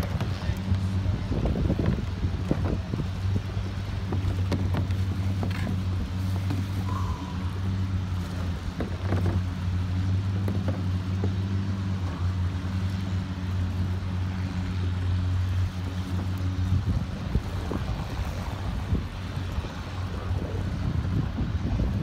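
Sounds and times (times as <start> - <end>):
wind noise: 0.0 - 9.5, 15.8 - 22.0
boat engine humming: 0.0 - 22.0
water: 0.0 - 22.0.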